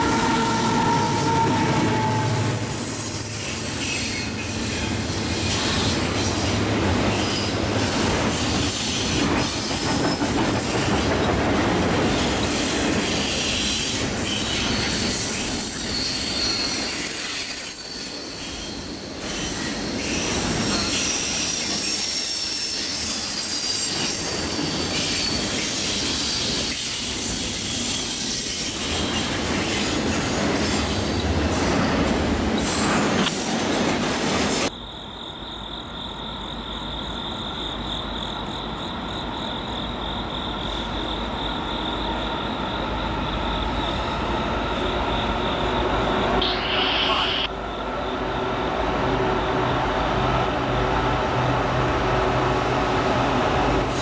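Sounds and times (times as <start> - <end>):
freight train rumble and clatter: 0.0 - 34.9, 35.6 - 54.0
distant train approaching: 0.0 - 54.0
wheel squeal: 12.5 - 29.9
high steady tone: 46.4 - 47.6.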